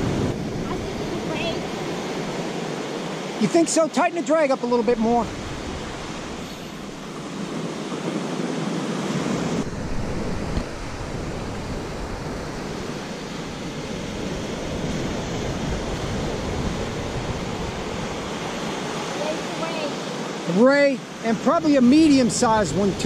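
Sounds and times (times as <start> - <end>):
wind rumbling on microphone: 0.0 - 3.1, 5.0 - 19.8
ocean surf breaking: 0.0 - 23.0.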